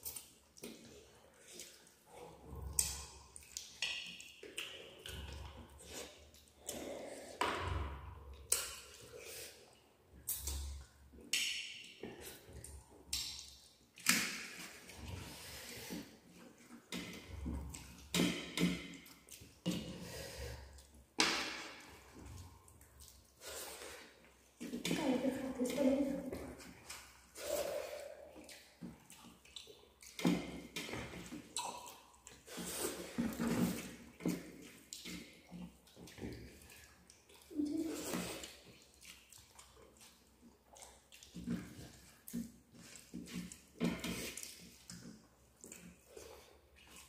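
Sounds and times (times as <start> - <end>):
chewing and lip smacking: 0.0 - 7.3, 22.0 - 23.4, 26.4 - 47.0.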